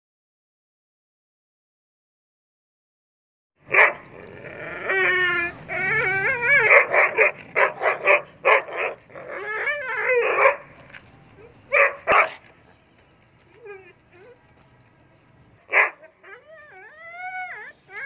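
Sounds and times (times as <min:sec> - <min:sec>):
large dog barking: 0:03.6 - 0:04.4, 0:05.2 - 0:10.8, 0:11.7 - 0:12.5, 0:15.7 - 0:16.1
dog whining: 0:03.8 - 0:12.4, 0:13.5 - 0:14.6, 0:15.7 - 0:18.0.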